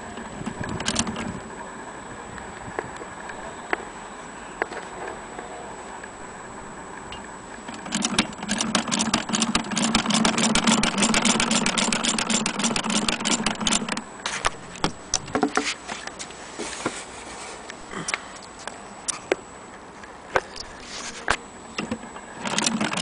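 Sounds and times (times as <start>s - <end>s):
hand-crank sewing machine running: 7.7s - 14.0s, 22.4s - 23.0s.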